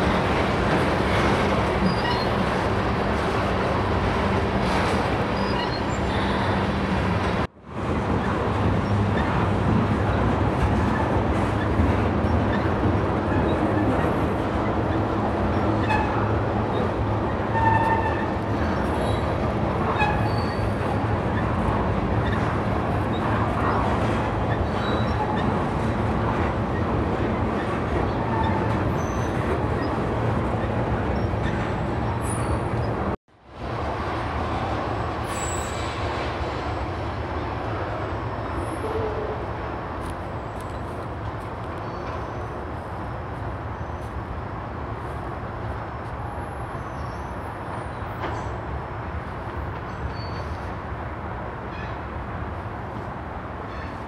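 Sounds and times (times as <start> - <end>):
train wheels rumbling on track: 0.0 - 54.0
high wheel squeaks: 1.8 - 2.4, 5.2 - 6.8, 19.9 - 20.8, 24.4 - 25.6, 27.6 - 30.0, 30.6 - 33.1.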